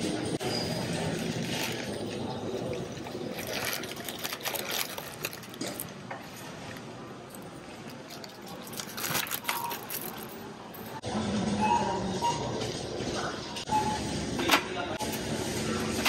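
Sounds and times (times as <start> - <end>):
shopping cart rolling rattle: 0.0 - 6.8, 7.4 - 11.0
plastic packs crinkling: 0.7 - 10.4.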